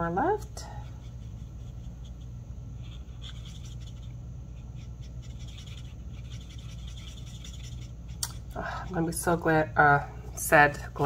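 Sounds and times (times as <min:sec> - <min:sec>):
steady low hum: 0:00.0 - 0:11.0
marker scratching on cardstock: 0:00.8 - 0:08.4.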